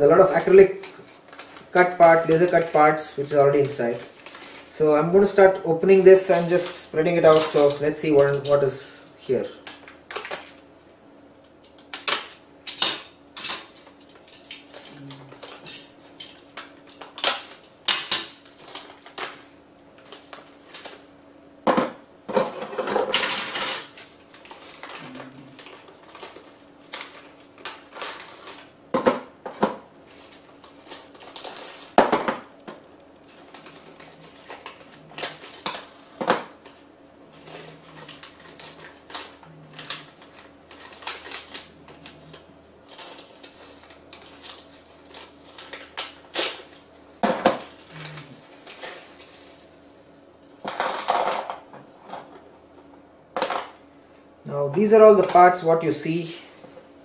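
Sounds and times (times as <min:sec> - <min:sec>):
plastic bags crinkling: 0:30.0 - 0:32.0, 0:36.6 - 0:46.9.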